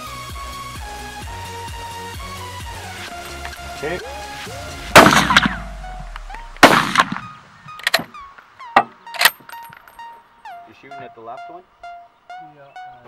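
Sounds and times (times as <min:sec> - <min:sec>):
background music: 0:00.0 - 0:13.0
loud rifle shots: 0:04.9 - 0:05.7, 0:06.6 - 0:08.0
quieter sharp cracks: 0:04.9 - 0:09.8.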